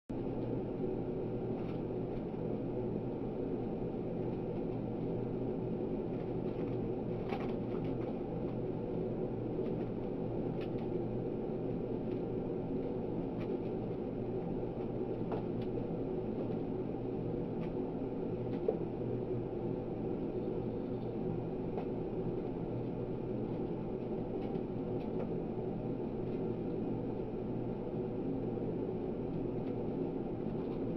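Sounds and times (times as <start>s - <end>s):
low room hum: 0.1s - 30.9s.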